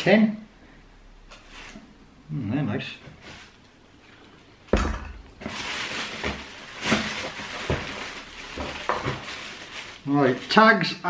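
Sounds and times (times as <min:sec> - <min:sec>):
rustling of shoebox contents: 0:05.4 - 0:10.6.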